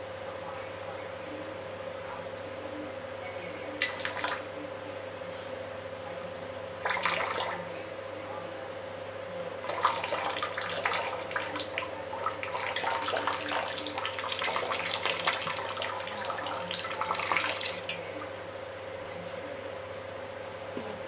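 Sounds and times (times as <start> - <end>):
water running and splashing: 3.8 - 4.5, 6.8 - 7.9, 9.6 - 18.5.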